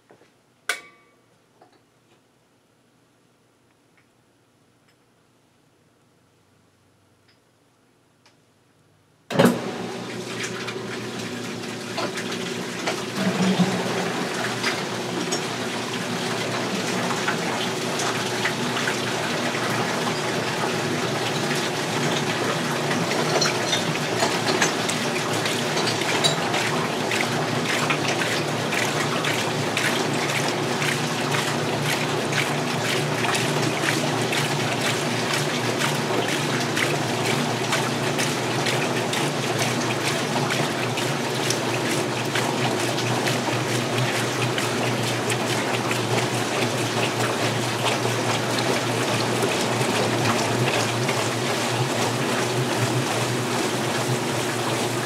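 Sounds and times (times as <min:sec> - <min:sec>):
washing machine hum: 0:09.3 - 0:55.0
water gushing and splashing: 0:09.6 - 0:55.0.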